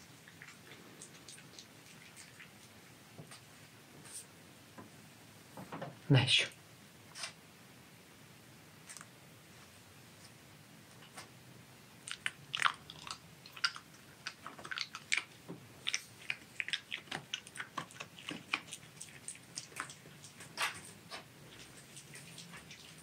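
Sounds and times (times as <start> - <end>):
fox crunching a hard treat: 12.1 - 23.0.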